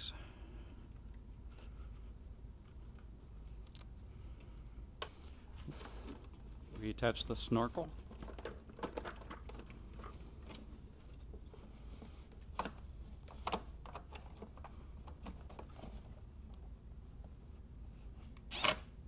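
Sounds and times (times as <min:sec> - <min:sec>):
plastic parts clicking and knocking: 0:07.8 - 0:10.6, 0:12.3 - 0:16.1.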